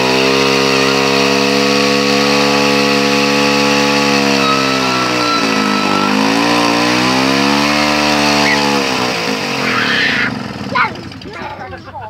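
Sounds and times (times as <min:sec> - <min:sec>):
chainsaw cutting through log: 0:00.0 - 0:11.3.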